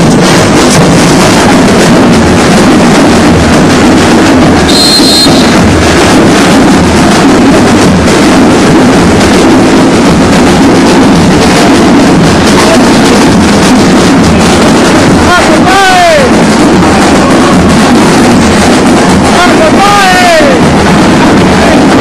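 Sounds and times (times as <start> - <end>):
distorted parade din: 0.0 - 22.0
high whistle: 4.7 - 5.6.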